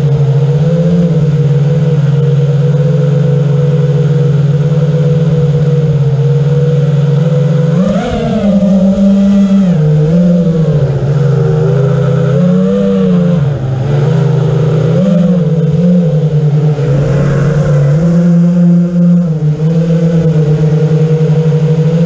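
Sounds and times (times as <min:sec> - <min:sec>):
quadcopter motors whining: 0:07.5 - 0:22.0.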